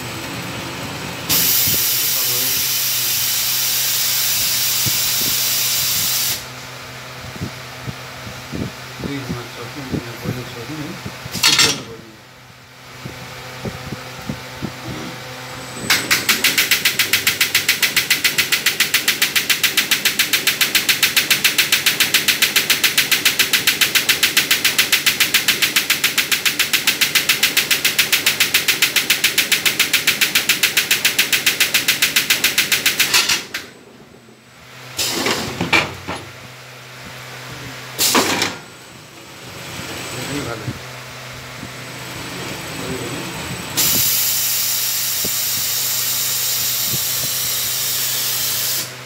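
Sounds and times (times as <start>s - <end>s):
machine pulsing hiss and clatter: 1.2s - 6.6s, 15.9s - 33.8s, 34.9s - 36.2s, 37.9s - 38.7s, 41.6s - 49.0s
short hissing bursts: 1.3s - 6.5s, 43.8s - 49.0s.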